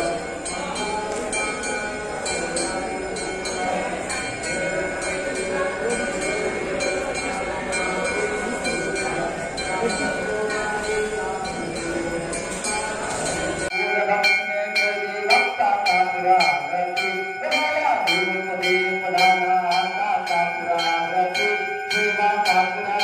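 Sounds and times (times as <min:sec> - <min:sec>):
bells struck in steady beat: 0:00.0 - 0:23.0
market hubbub: 0:00.0 - 0:23.0
person singing devotional song: 0:00.0 - 0:23.0.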